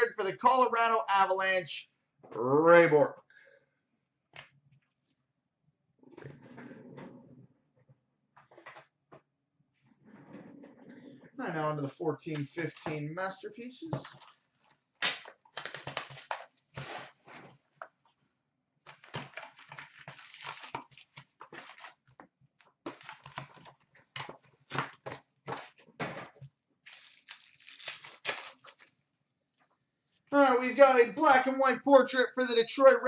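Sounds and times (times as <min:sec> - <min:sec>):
foil packs crinkling and tearing: 0:15.0 - 0:17.1, 0:19.1 - 0:22.1, 0:26.8 - 0:28.9.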